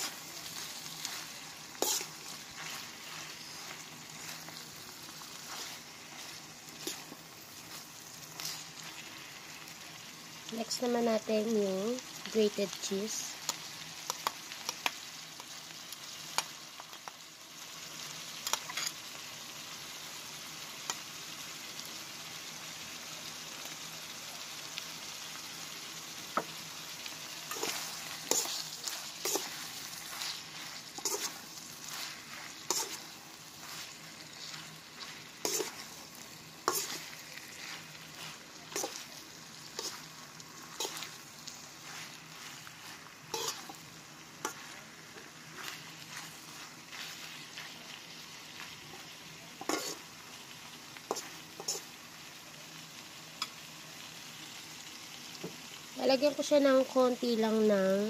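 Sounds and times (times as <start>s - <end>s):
spatula scraping pan: 0.0s - 9.3s, 27.4s - 43.8s, 44.4s - 47.8s, 49.6s - 50.0s, 51.0s - 52.0s
meat sizzling in frying pan: 0.0s - 58.0s.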